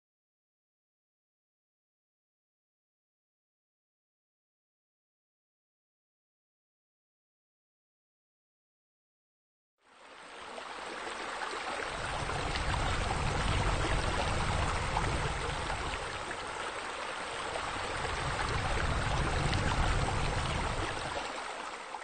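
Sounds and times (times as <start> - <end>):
faint fire crackles: 11.8 - 16.7, 17.3 - 21.4.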